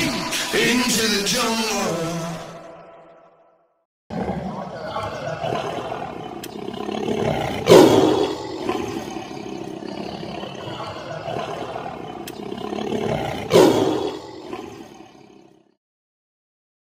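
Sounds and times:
big cat roars: 4.1s - 15.8s.

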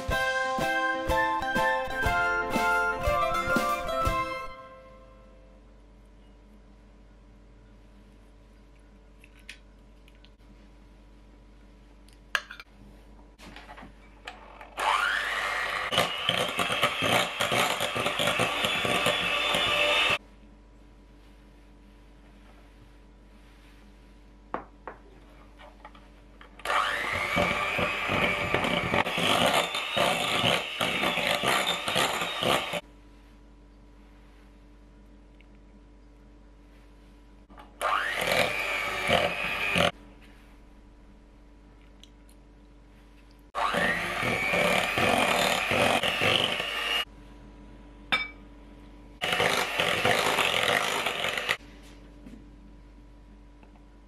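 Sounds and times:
electric hand mixer running: 14.8s - 20.2s, 26.6s - 32.8s, 37.8s - 40.0s, 43.6s - 47.1s, 49.2s - 51.6s
glass cup clinking on glass bowl: 48.1s - 48.4s.

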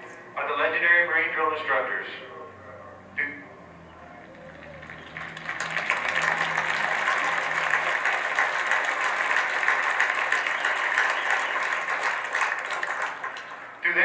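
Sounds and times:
large crowd applauding: 4.1s - 14.0s.

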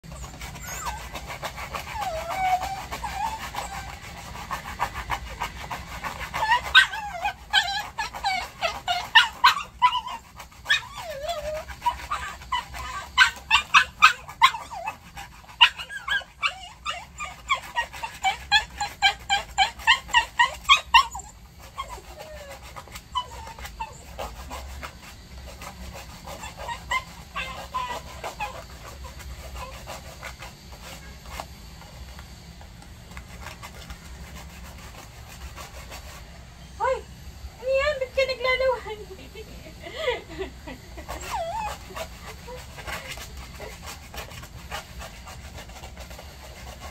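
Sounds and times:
dog whimpering and yelping: 0.0s - 31.0s, 36.8s - 46.9s.

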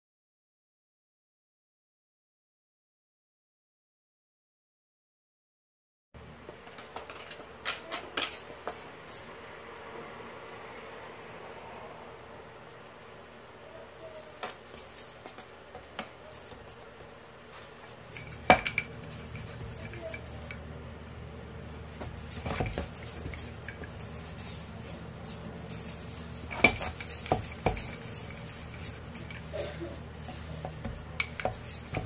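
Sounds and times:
metal bangles clinking: 6.2s - 21.0s, 21.6s - 32.0s
low steady hum: 6.2s - 32.0s.

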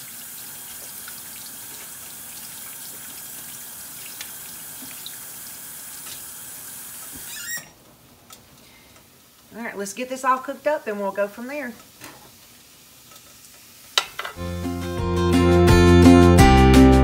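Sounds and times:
water running from faucet: 0.0s - 7.6s.

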